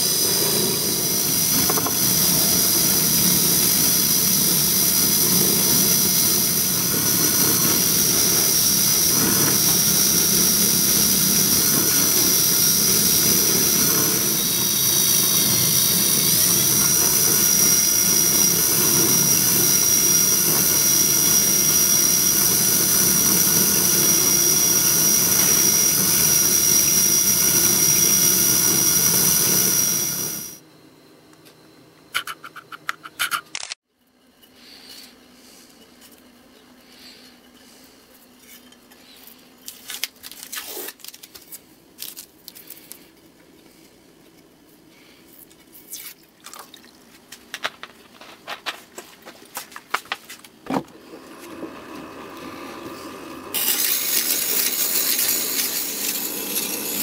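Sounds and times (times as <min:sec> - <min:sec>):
lathe motor whine: 0:00.0 - 0:30.6, 0:50.9 - 0:57.0
metal part polishing on wheel: 0:00.0 - 0:30.6, 0:51.3 - 0:57.0.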